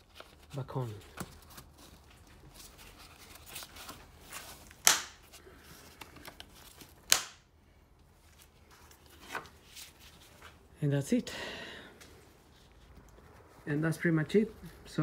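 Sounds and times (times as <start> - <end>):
plastic clips snapping shut: 4.8 - 5.2, 7.1 - 7.4.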